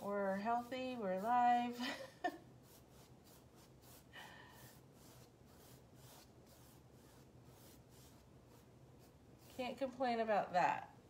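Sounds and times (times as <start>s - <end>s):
paintbrush swishing on canvas: 0.0s - 10.0s.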